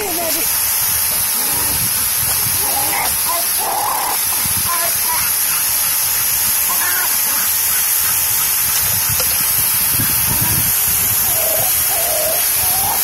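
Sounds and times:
pressure washer spraying: 0.0s - 13.0s
dog whining: 2.6s - 4.3s, 11.2s - 13.0s.

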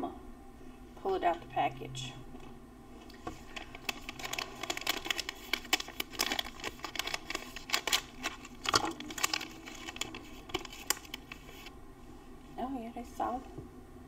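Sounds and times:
plastic wrapper crinkling: 3.0s - 11.7s.

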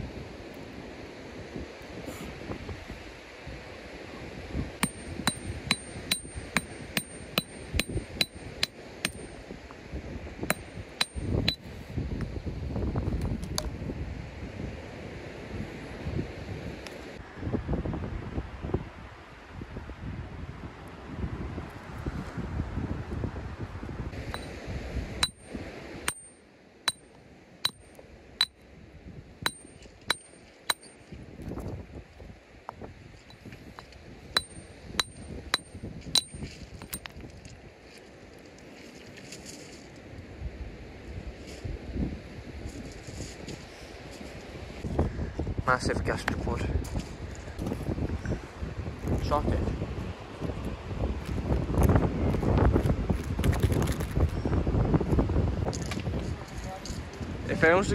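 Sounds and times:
wind rumble on microphone: 0.0s - 26.3s, 27.6s - 57.9s
hammer striking rock: 4.8s - 9.4s, 10.5s - 11.6s, 24.3s - 24.5s, 25.2s - 27.0s, 27.6s - 27.8s, 29.5s - 31.0s, 34.4s - 37.1s.

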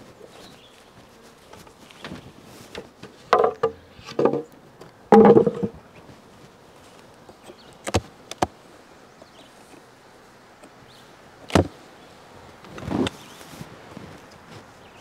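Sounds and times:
hollow wooden knocks: 2.8s - 4.5s, 5.1s - 5.8s
wooden boxes scraping: 5.1s - 5.9s.

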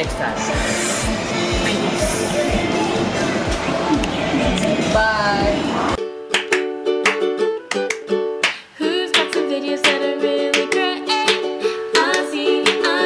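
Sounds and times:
gliding lead melody: 0.0s - 7.5s
upbeat plucked tune with beat: 0.0s - 13.0s.

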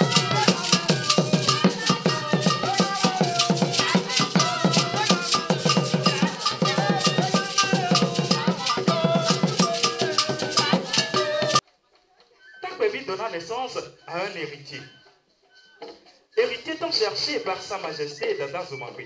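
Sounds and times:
drum and percussion ensemble: 0.0s - 11.6s
voices singing: 0.0s - 11.6s.

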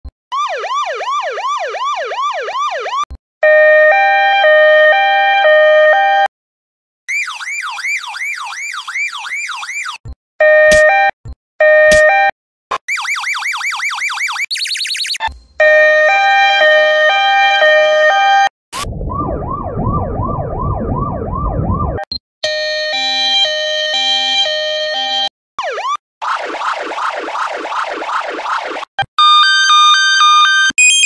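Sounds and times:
two-tone hi-lo siren: 0.3s - 6.3s, 7.1s - 31.0s
electronic siren sweeping: 7.1s - 10.9s, 12.8s - 31.0s.

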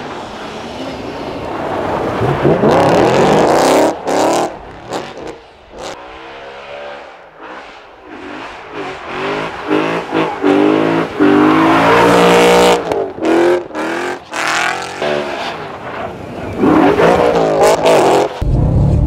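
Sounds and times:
car engine revving hard: 2.2s - 15.4s, 16.6s - 18.4s.

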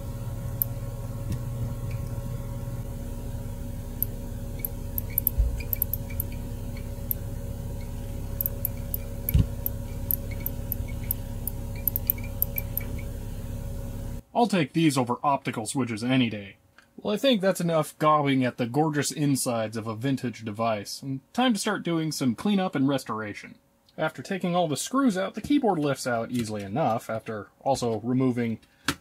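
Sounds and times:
steady low hum: 0.0s - 14.4s
tiny sharp key ticks: 4.0s - 6.4s, 8.4s - 13.0s.

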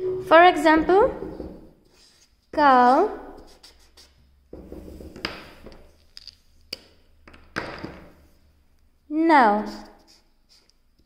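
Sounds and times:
scraping rub on desk: 1.8s - 2.4s, 3.4s - 5.2s.

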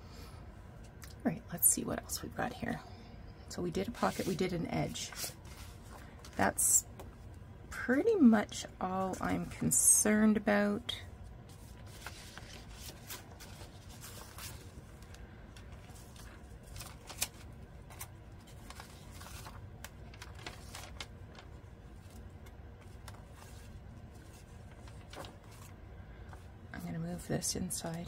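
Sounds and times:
paper rustling: 3.9s - 6.4s, 11.4s - 26.5s
pages turning with light ticks: 11.2s - 26.5s.

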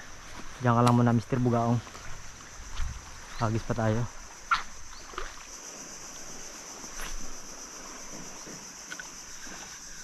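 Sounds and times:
high-pitched insect drone: 0.0s - 10.0s
faint knocks or splashes: 4.5s - 5.5s.

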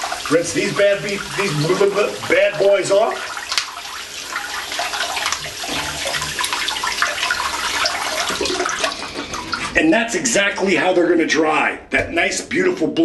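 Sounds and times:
tap water splashing into sink: 0.0s - 9.8s.

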